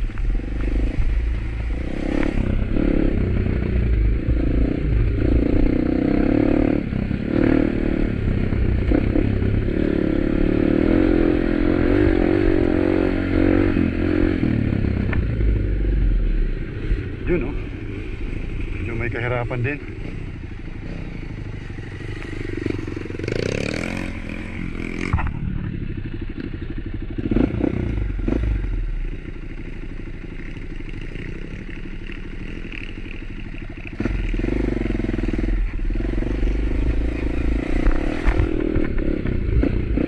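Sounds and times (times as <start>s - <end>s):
motorcycle engine running: 0.0s - 40.0s
motorcycle knocking and rattling: 17.0s - 27.8s, 29.0s - 36.7s, 37.5s - 40.0s.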